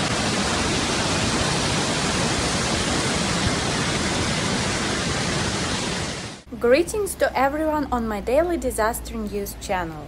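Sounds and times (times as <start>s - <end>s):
flood water rushing: 0.0s - 6.5s.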